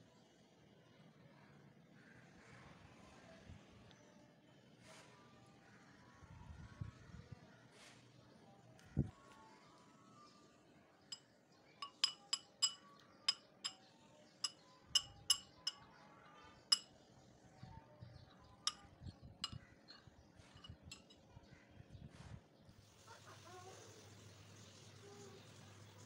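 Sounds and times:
metal spoon clinking glass bowl: 11.8 - 16.0, 16.7 - 16.9, 18.7 - 21.2.

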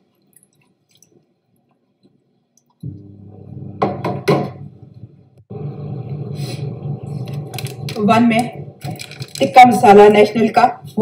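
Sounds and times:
steady low hum: 2.8 - 11.0.

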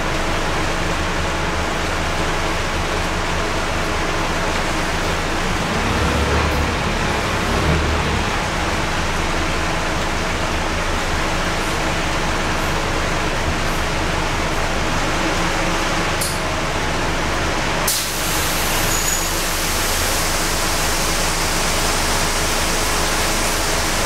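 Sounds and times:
bus diesel engine hum: 0.0 - 24.0
tyres on wet road: 0.0 - 24.0
rain hiss: 17.9 - 24.0.

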